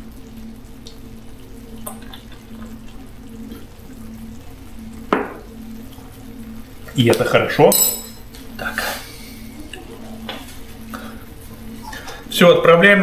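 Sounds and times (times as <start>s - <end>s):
beer pouring: 0.0s - 7.6s
low hum: 0.0s - 12.7s.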